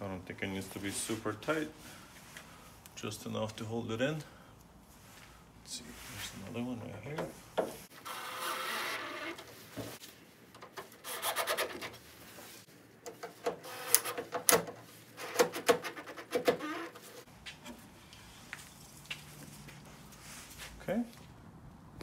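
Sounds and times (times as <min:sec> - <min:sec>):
screw squeaking into plastic: 0:08.0 - 0:09.5, 0:15.2 - 0:17.2.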